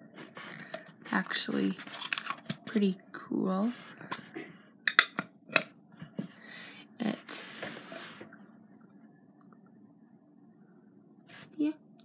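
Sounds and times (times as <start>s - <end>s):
metal tin clicks and knocks: 4.9s - 5.7s.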